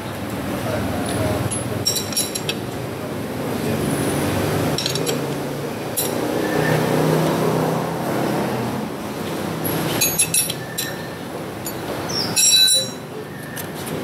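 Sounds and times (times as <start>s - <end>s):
metal clinks of chain tool: 1.4s - 2.6s, 4.7s - 5.3s, 6.0s - 6.2s, 9.9s - 13.1s.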